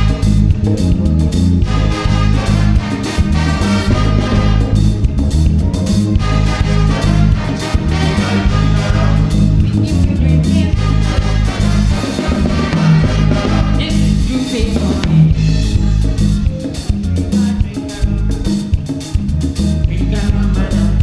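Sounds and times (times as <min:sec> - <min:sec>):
saxophones and trumpets: 0:00.0 - 0:16.3
bass line: 0:00.0 - 0:21.0
drum kit: 0:00.0 - 0:21.0
keyboard: 0:00.0 - 0:21.0.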